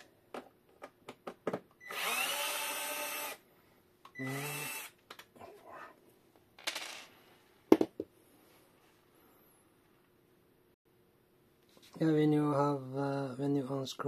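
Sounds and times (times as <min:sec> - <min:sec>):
electric screwdriver whirring: 0:01.8 - 0:03.4, 0:04.2 - 0:04.9.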